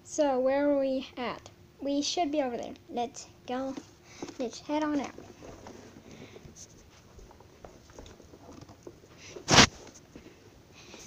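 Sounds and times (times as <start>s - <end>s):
plush toys shuffling and tapping: 3.6s - 11.0s.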